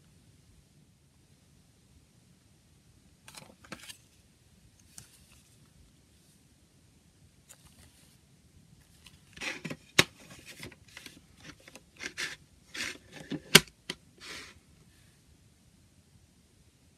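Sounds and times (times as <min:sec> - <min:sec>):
paper booklet rustling and scraping: 0:03.3 - 0:04.2, 0:04.8 - 0:06.4, 0:07.5 - 0:08.2, 0:08.8 - 0:13.6, 0:14.2 - 0:14.6.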